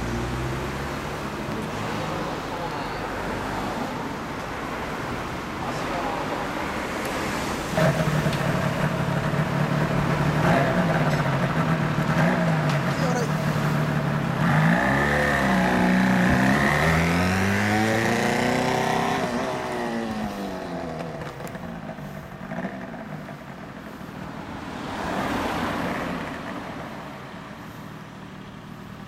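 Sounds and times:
passing traffic: 0:00.0 - 0:29.0
two-stroke motorcycle revving: 0:07.6 - 0:23.9.

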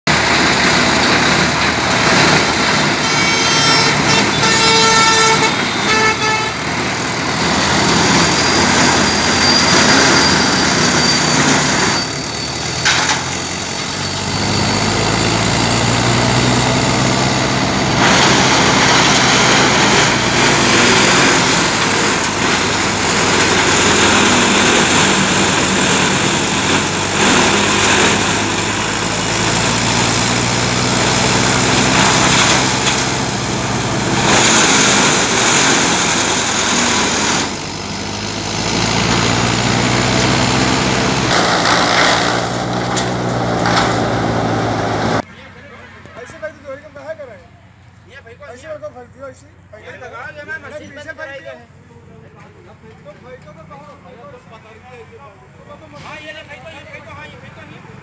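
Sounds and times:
diesel engine and wood crusher: 0:00.1 - 0:48.0
high-pitched horn-like tone: 0:03.0 - 0:06.7.

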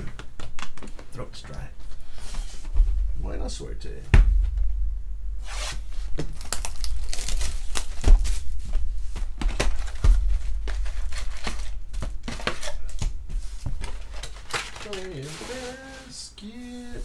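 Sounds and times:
foil packs crinkling: 0:06.1 - 0:08.6, 0:09.3 - 0:13.1, 0:13.7 - 0:17.0
cardboard box tearing: 0:06.3 - 0:08.3.

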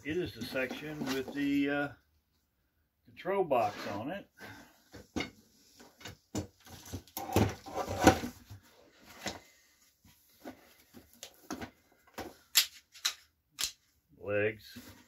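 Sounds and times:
rustling and scraping in cardboard box: 0:06.7 - 0:11.6.

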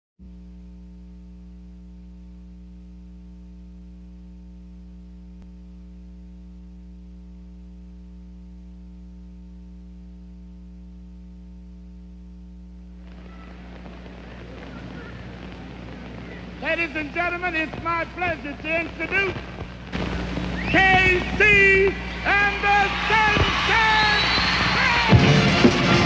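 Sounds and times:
electrical mains hum: 0:00.2 - 0:25.3
faint hiss: 0:12.9 - 0:24.9.

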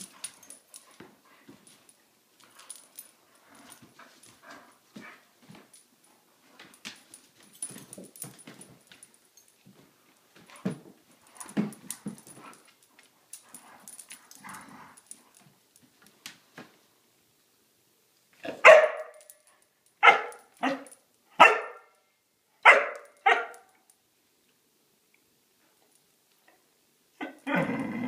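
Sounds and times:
faint clicks and scuffling: 0:00.0 - 0:16.9
dog play barking: 0:18.4 - 0:19.4, 0:20.0 - 0:22.0, 0:22.6 - 0:23.8.

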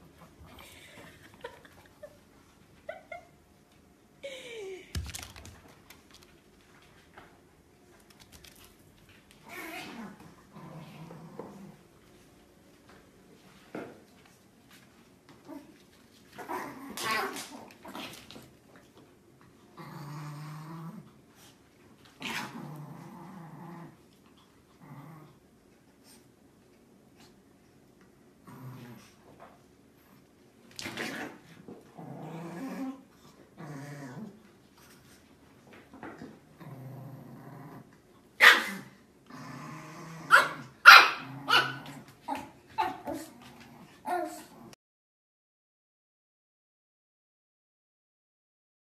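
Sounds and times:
pet growling low: 0:09.4 - 0:11.9, 0:19.6 - 0:21.5, 0:22.2 - 0:25.4, 0:28.4 - 0:29.2, 0:30.9 - 0:34.4, 0:36.2 - 0:38.0, 0:38.7 - 0:44.8
dog barking sharply: 0:40.3 - 0:41.7.

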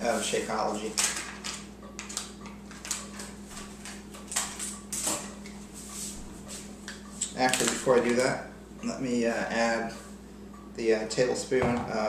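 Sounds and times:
packet crinkling: 0:07.4 - 0:08.3.

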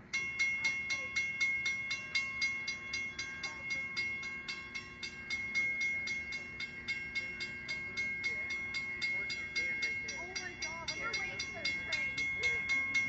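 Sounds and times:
railroad crossing bell ringing: 0:00.0 - 0:13.0.

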